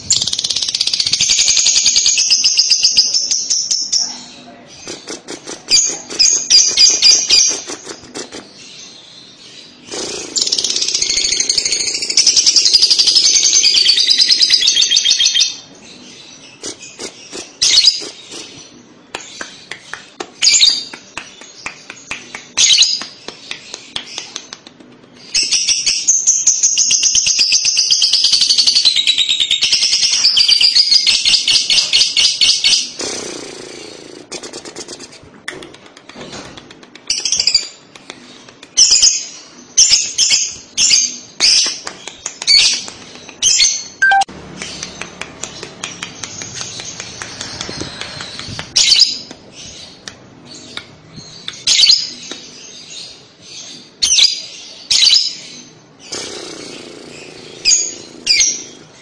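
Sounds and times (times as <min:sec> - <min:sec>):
lovebird chattering trills: 0:42.5 - 0:44.9
bird chirps: 0:42.5 - 0:59.0.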